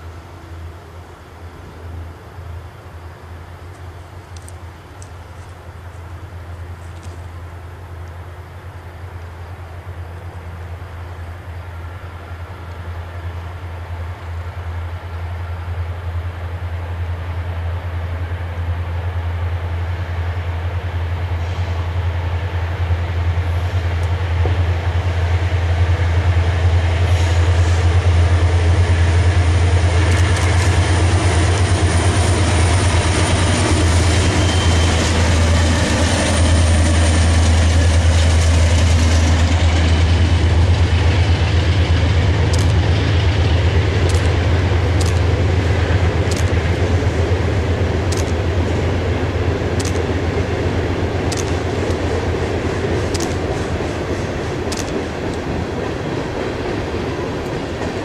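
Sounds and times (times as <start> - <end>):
freight train rumbling over bridge: 0.0 - 58.0
high-pitched squeal: 30.9 - 41.6
sharp clacks: 44.0 - 45.4, 51.3 - 52.2, 53.1 - 54.0.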